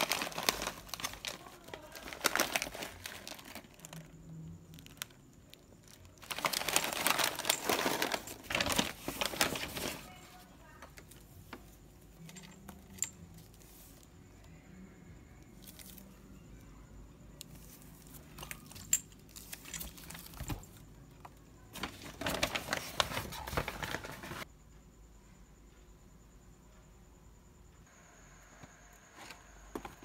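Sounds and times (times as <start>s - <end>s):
packaging crinkling: 0.0s - 4.1s, 4.7s - 10.2s, 21.8s - 24.4s.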